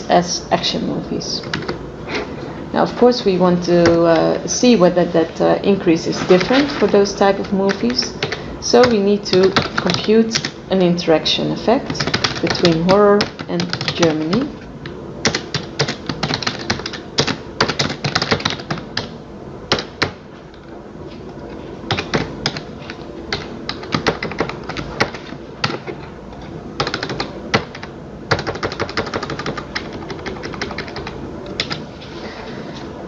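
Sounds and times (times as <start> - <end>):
typing on computer keyboard: 1.4 - 1.8, 7.4 - 10.5, 11.9 - 14.5, 15.2 - 19.1, 19.7 - 20.2, 21.9 - 26.0, 26.8 - 31.8.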